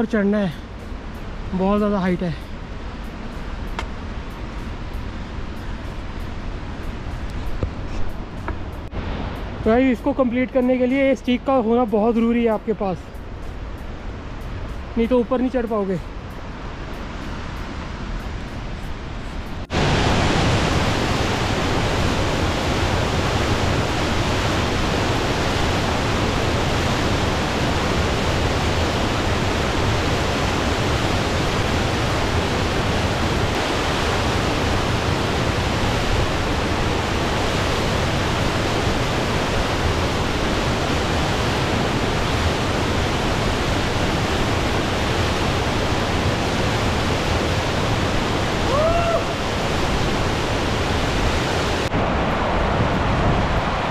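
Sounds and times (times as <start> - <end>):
waterfall rushing: 19.7 - 53.9.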